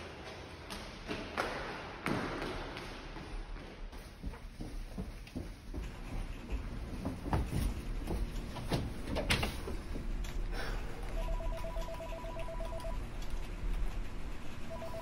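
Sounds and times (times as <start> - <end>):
electronic telephone ringing: 11.2 - 13.0, 14.7 - 15.0.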